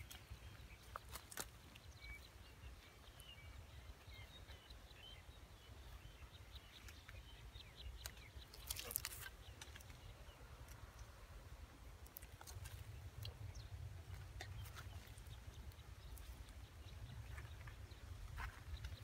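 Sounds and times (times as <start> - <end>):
small birds chirping: 0.0 - 19.0
clicks and rustles: 8.0 - 10.0
low steady rumble: 9.9 - 19.0.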